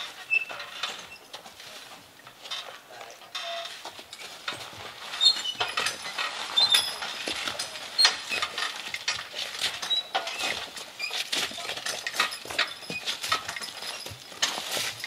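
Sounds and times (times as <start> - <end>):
harness and chains clinking: 0.0 - 15.0
hooves shuffling on frozen ground: 1.0 - 15.0.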